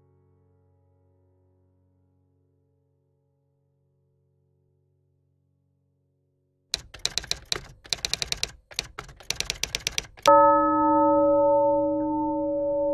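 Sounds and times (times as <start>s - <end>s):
typewriter key strikes: 6.8s - 10.3s
typewriter bell ding: 6.8s - 12.9s.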